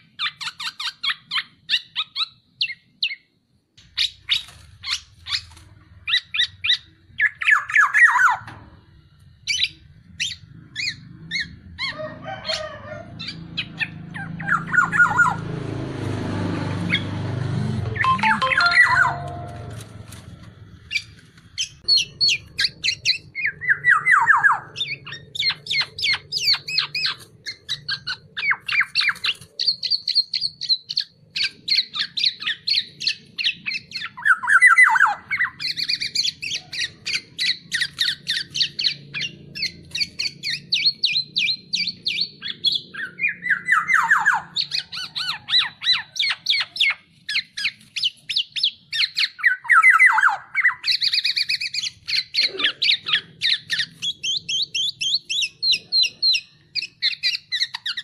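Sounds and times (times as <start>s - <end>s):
bird calling harsh notes: 17.8s - 20.2s.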